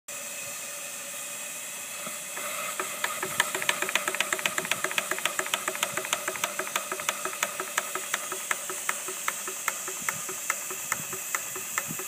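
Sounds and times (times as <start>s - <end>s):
steam hissing: 0.1s - 12.0s
steam engine exhaust chuffs: 1.1s - 12.0s.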